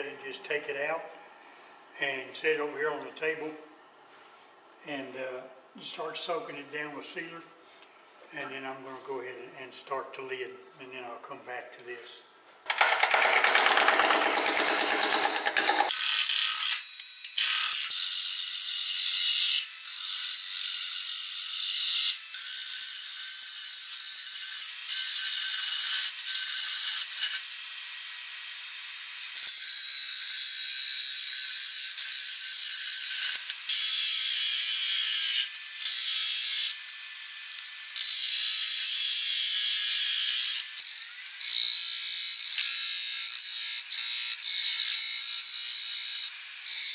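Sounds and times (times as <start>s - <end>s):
lathe tool scraping wood: 13.1s - 15.9s.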